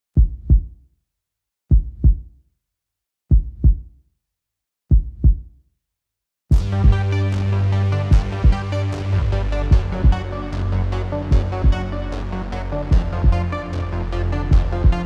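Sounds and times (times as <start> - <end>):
heartbeat double thumps: 0.2 - 0.8, 1.7 - 2.3, 3.3 - 3.9, 4.9 - 5.5, 6.5 - 7.0, 8.1 - 8.6, 9.7 - 10.2, 11.3 - 11.8, 12.9 - 13.5, 14.5 - 15.0
electronic music: 6.6 - 15.0.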